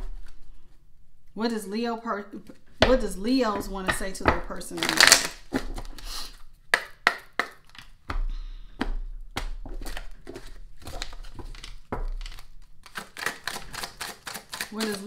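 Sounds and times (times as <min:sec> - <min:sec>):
cards being shuffled: 0:04.8 - 0:06.3, 0:09.6 - 0:15.0.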